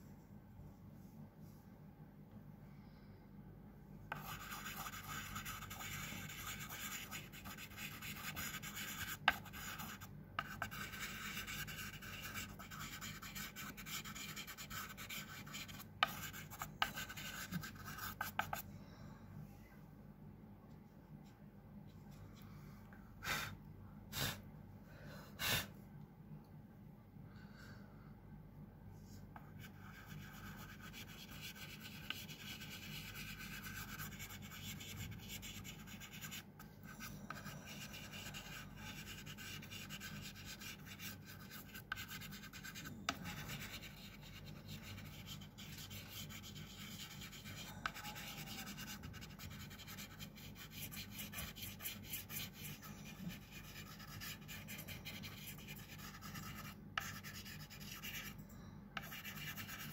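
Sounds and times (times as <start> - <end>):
pastel scratching on paper: 4.1 - 18.6, 29.5 - 58.4, 59.0 - 59.9.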